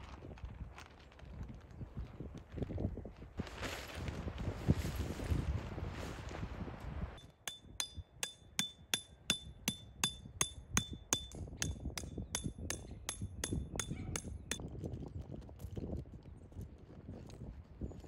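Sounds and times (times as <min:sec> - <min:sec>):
wind noise on microphone: 0:00.0 - 0:18.0
hammer striking metal tent peg: 0:07.2 - 0:14.6.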